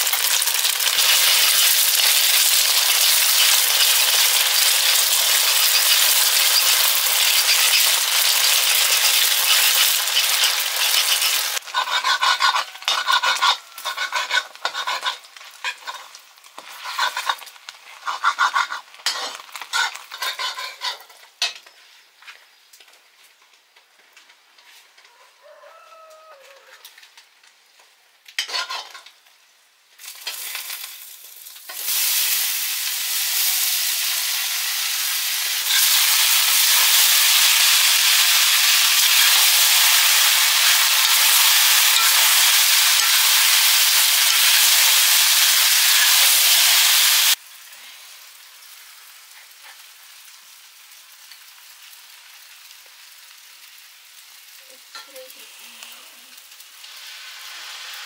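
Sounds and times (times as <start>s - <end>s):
food sizzling in hot oil: 0.0s - 21.8s, 28.3s - 58.0s.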